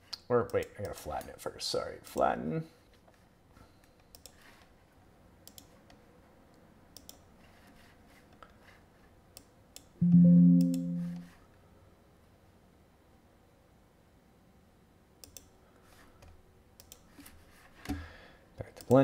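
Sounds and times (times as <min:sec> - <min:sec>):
computer mouse clicks: 0:04.1 - 0:04.5, 0:05.4 - 0:06.0, 0:06.9 - 0:07.3, 0:15.2 - 0:15.5, 0:16.2 - 0:17.1
low musical tone: 0:10.0 - 0:11.3.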